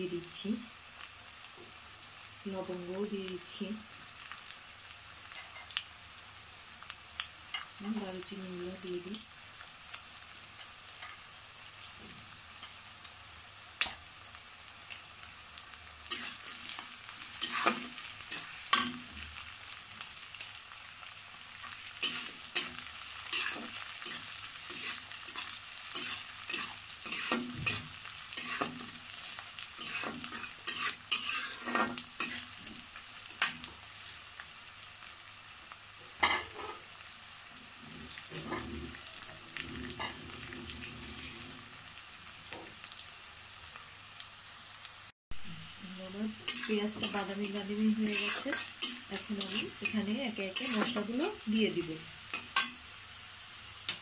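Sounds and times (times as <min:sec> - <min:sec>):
onions sizzling in hot oil: 0:00.0 - 0:54.0
metal spatula scraping pan: 0:16.1 - 0:19.2, 0:22.0 - 0:29.2, 0:29.8 - 0:32.8, 0:38.2 - 0:41.7, 0:46.4 - 0:51.4.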